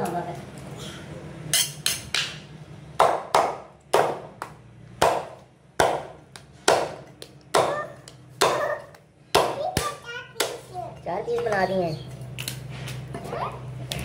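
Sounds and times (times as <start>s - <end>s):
cleaver chopping on wooden block: 3.0s - 8.7s.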